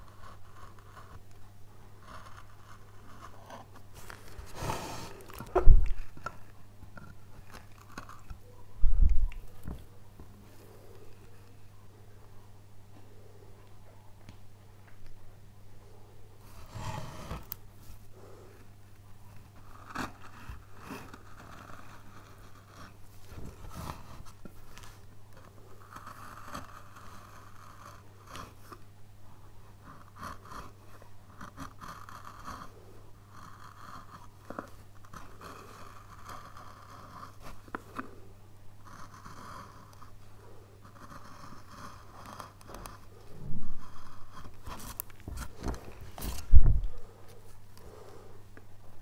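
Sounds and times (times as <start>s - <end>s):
chisel scraping wood: 0.0s - 1.3s, 2.0s - 8.4s, 16.4s - 18.0s, 18.6s - 28.8s, 29.8s - 38.1s, 38.8s - 40.2s, 40.8s - 46.6s
steady low hum: 0.0s - 49.0s.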